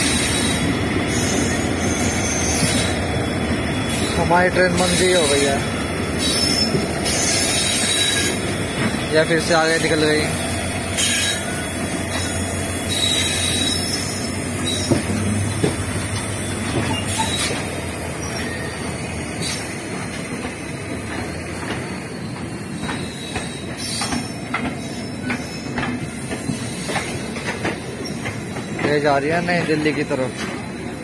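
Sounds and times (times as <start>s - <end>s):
train wheels rumbling on track: 0.0s - 31.0s
wheels clicking over rail joints: 14.6s - 17.8s, 22.8s - 30.8s.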